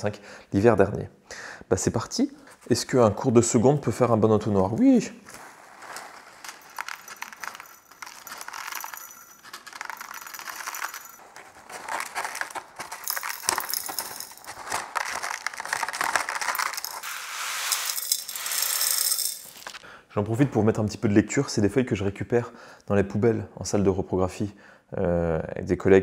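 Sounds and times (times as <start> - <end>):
granules pattering onto glass: 5.9 - 19.8.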